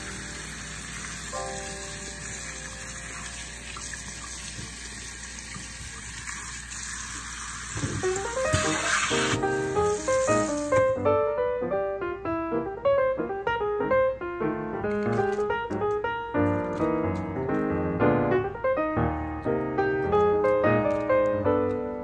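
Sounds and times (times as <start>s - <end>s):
soft piano music: 0.0s - 6.6s, 7.6s - 22.0s
tap water running: 0.0s - 11.0s.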